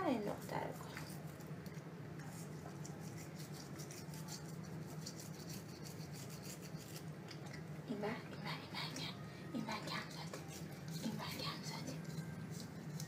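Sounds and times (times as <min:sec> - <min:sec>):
low steady hum: 0:00.0 - 0:13.0
toothbrush scrubbing teeth: 0:00.9 - 0:07.7, 0:09.7 - 0:13.0.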